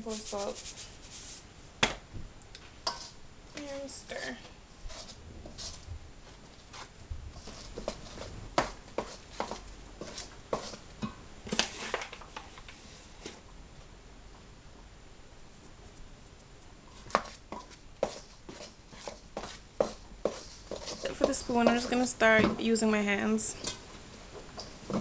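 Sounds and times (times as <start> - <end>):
metal spoon scraping steel bowl: 2.9 - 3.2.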